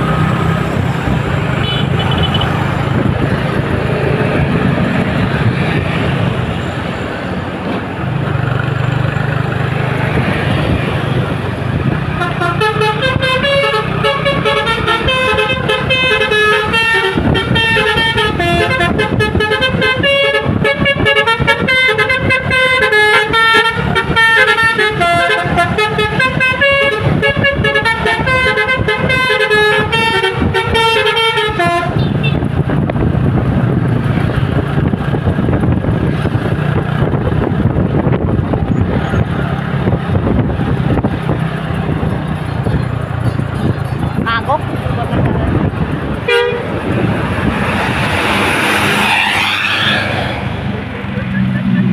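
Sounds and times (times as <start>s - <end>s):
road and wind noise: 0.0s - 51.9s
multi-tone horn melody: 1.6s - 2.6s, 12.1s - 32.5s, 46.2s - 46.8s
low engine hum: 23.3s - 49.4s.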